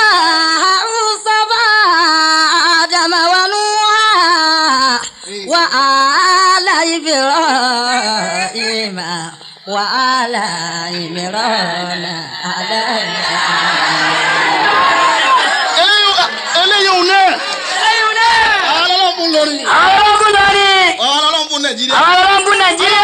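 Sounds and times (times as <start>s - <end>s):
person chanting: 4.1s - 17.1s.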